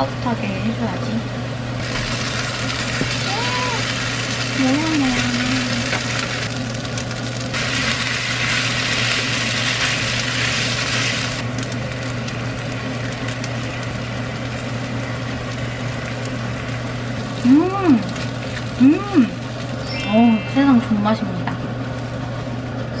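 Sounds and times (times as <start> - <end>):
low steady hum: 0.0 - 23.0
fried rice sizzling in pan: 1.8 - 17.5.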